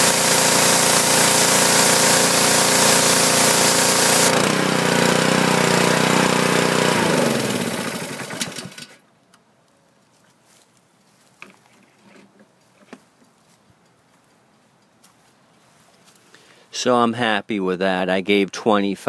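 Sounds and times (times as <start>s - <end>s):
high-pressure water spraying: 0.0s - 7.6s
small engine running: 0.0s - 9.0s.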